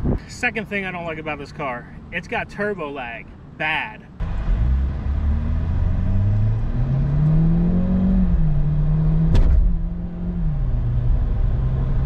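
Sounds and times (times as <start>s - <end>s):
car engine accelerating: 4.2s - 12.0s.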